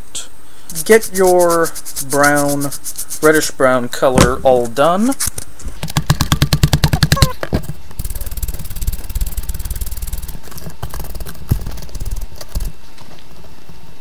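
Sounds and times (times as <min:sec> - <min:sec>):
steady low hum: 0:00.0 - 0:14.0
rapid light tapping and knocking: 0:05.8 - 0:12.7.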